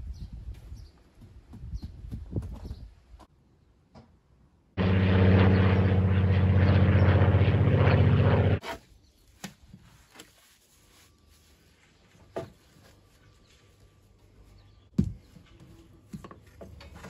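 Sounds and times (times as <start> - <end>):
motor humming: 4.8 - 8.6.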